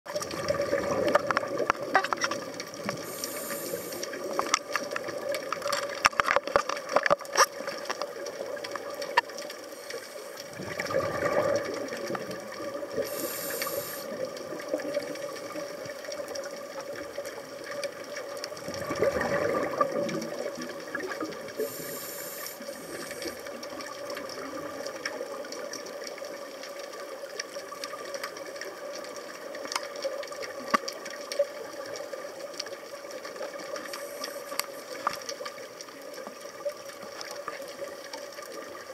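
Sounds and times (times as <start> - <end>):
exhaled bubbles rushing: 0.1 - 5.6, 10.4 - 22.0
regulator inhale hiss: 3.0 - 4.3, 9.7 - 10.5, 13.0 - 14.3, 21.6 - 23.5, 33.9 - 34.8.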